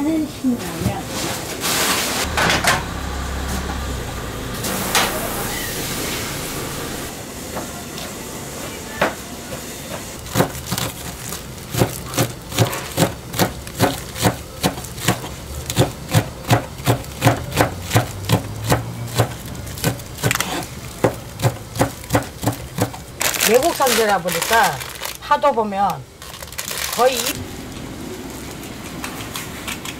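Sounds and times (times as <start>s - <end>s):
knife chopping on plastic board: 10.3s - 11.0s, 11.7s - 23.0s.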